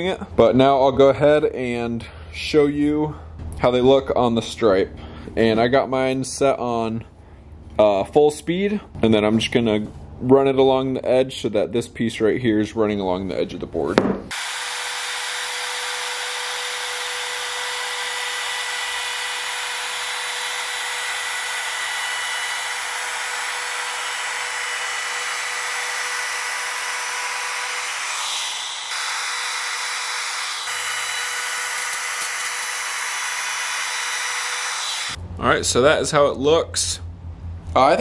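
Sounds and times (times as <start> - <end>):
router cutting wood: 14.3 - 35.2.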